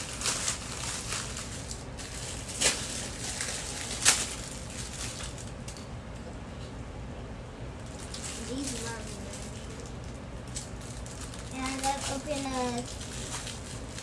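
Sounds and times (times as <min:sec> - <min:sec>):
plastic packaging rustling: 0:00.0 - 0:05.6, 0:07.8 - 0:14.0
sharp plastic crinkles: 0:00.0 - 0:05.8, 0:07.8 - 0:14.0.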